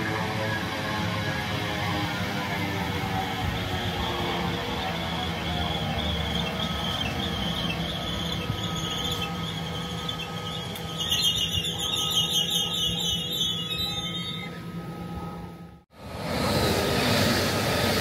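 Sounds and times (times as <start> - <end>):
train low hum: 0.0 - 18.0
high wavering squeal: 3.0 - 15.6.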